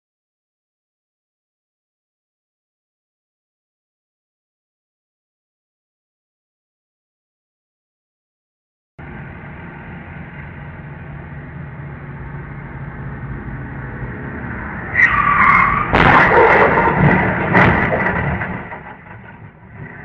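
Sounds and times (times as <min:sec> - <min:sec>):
low rumble: 0:09.0 - 0:20.0
car tyres squealing: 0:13.8 - 0:19.0
car crash: 0:14.4 - 0:20.0
bang: 0:14.9 - 0:19.7.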